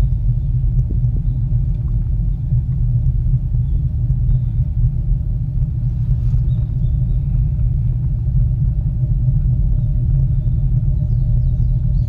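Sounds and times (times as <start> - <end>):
cable car cabin rumble: 0.0 - 12.0
faint steady hum: 0.0 - 12.0.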